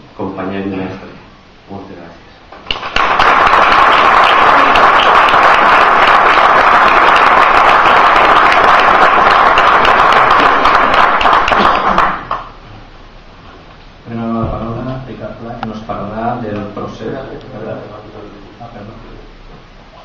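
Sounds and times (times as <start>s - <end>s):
audience applauding: 2.6s - 12.6s.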